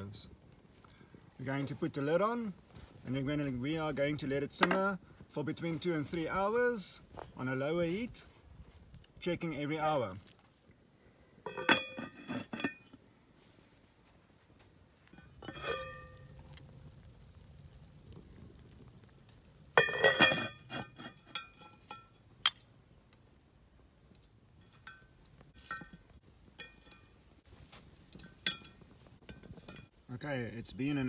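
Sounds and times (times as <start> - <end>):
cast-iron lid clanking: 11.4 - 13.0, 15.2 - 16.6, 19.7 - 22.6, 24.6 - 27.2, 28.1 - 29.9.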